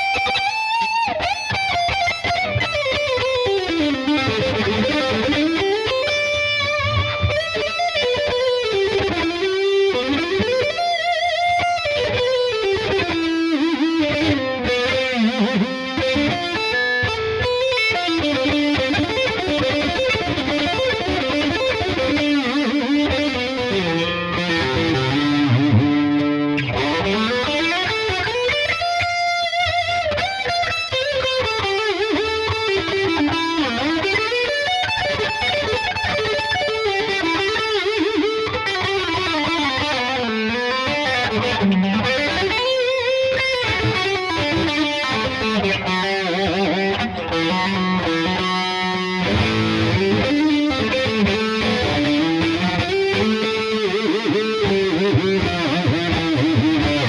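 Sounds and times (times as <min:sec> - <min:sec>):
distorted electric guitar runs: 0:00.0 - 0:57.0.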